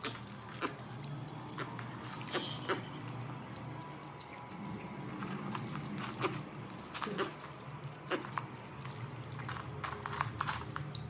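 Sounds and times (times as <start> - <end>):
piglet chewing grapes: 0.0 - 11.0.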